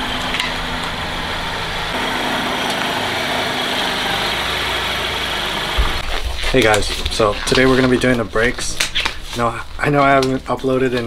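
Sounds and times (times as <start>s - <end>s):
car engine idling: 0.0s - 6.0s.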